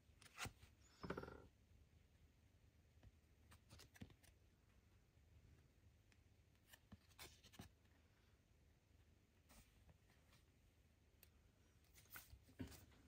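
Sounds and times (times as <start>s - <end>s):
fingers handling a card: 3.4s - 4.4s.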